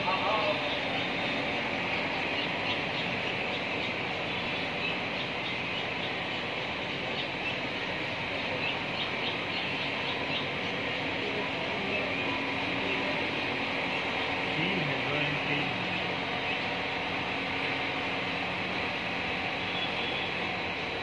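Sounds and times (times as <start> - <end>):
nestlings chirping: 0.0 - 7.7, 8.3 - 11.0.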